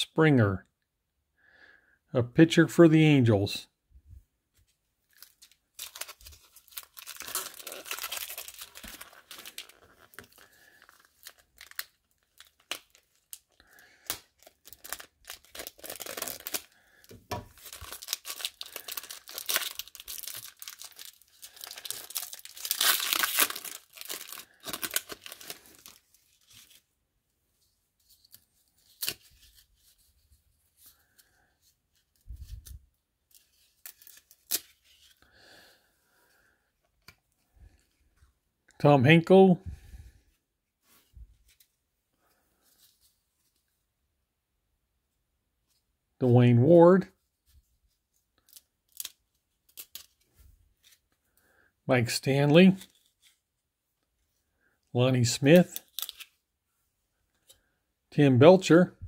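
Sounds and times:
foil wrapper tearing and crinkling: 5.1 - 26.8, 33.4 - 35.2, 48.4 - 50.2, 55.6 - 56.3.

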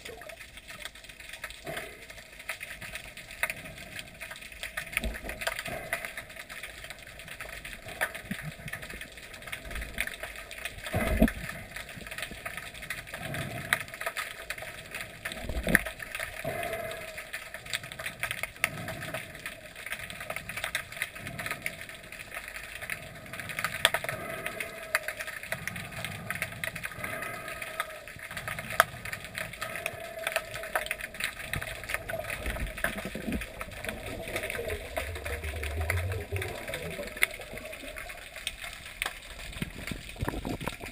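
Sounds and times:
underwater crackle of clicks: 0.0 - 40.9.

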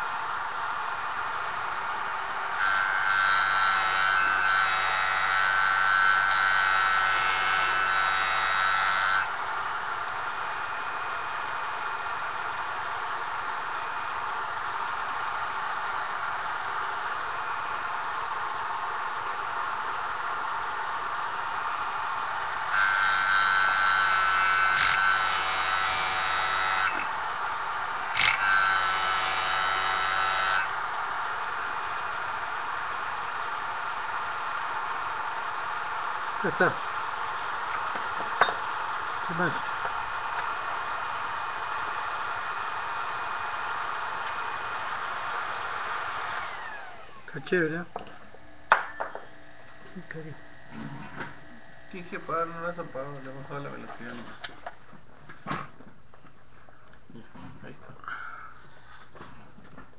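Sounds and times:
sharpener motor running: 1.5 - 17.8, 21.0 - 47.8
grinding on abrasive disc: 27.9 - 30.8.

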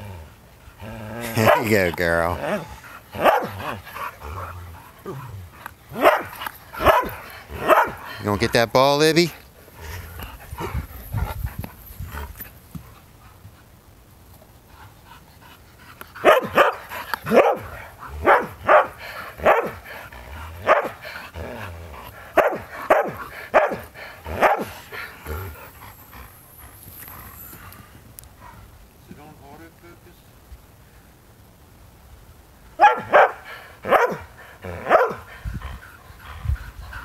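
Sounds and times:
dog barking: 1.4 - 1.7, 3.2 - 3.6, 6.0 - 8.0, 16.2 - 19.8, 20.6 - 21.0, 22.4 - 23.8, 24.4 - 24.7, 32.8 - 35.2.

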